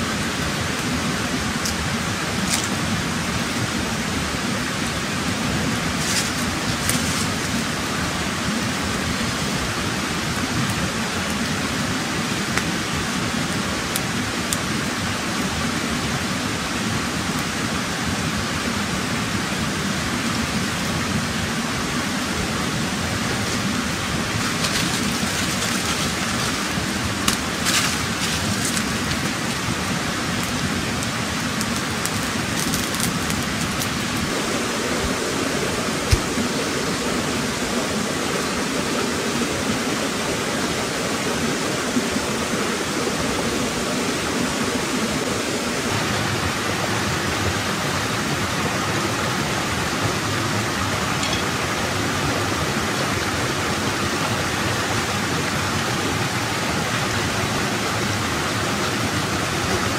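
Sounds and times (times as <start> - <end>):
campfire crackling: 0.0 - 17.9, 20.2 - 46.6
stream water flowing: 0.0 - 59.9.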